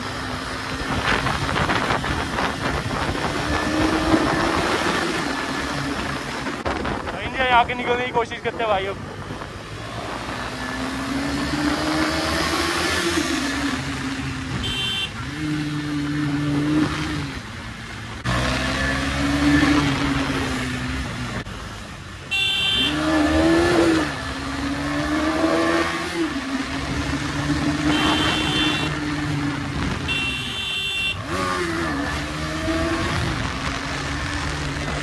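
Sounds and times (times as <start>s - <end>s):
motorcycle engine revving: 0.0s - 7.2s, 9.0s - 21.5s, 22.3s - 35.0s
vehicle horn honks: 14.5s - 15.4s, 22.3s - 23.2s, 27.8s - 29.0s, 30.0s - 31.4s.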